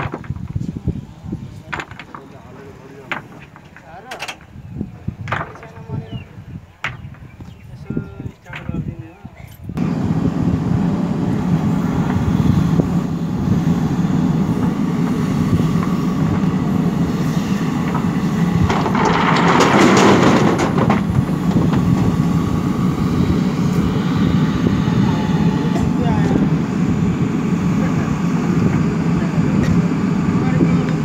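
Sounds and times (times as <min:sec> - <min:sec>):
diesel engine running: 0:09.8 - 0:31.0.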